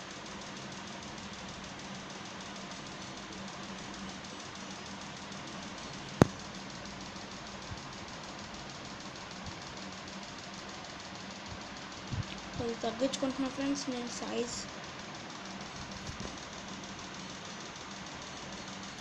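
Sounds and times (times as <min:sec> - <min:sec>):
low pulsing hum and hiss: 0:00.0 - 0:19.0
sharp click: 0:06.1 - 0:06.5.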